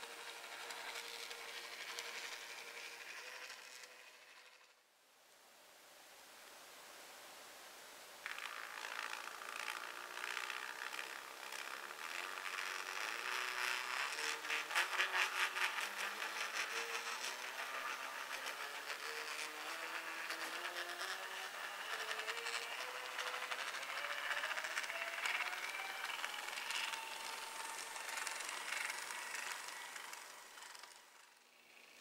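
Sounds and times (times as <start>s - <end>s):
model train wheels rattling: 0.0s - 4.8s, 8.2s - 32.0s
stepper motor whine: 8.3s - 32.0s.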